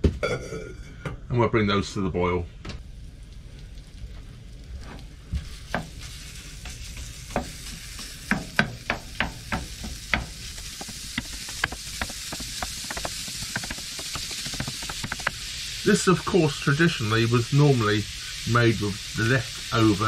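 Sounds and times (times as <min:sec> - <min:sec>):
meat sizzling: 0:02.8 - 0:20.0
wooden spoon scraping a pan: 0:04.8 - 0:15.4.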